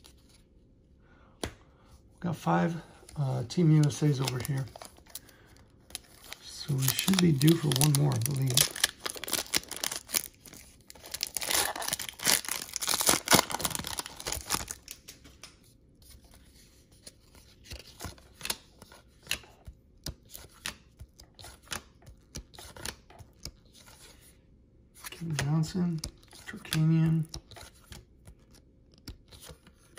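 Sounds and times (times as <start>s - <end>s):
cards clicking being handled: 3.7s - 5.2s
wrapper tearing and crinkling: 5.9s - 15.1s.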